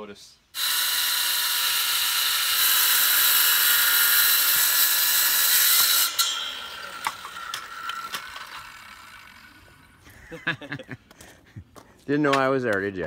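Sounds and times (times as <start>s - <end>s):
saw blade winding down: 0.6s - 10.6s
circular saw cutting board: 0.6s - 10.8s.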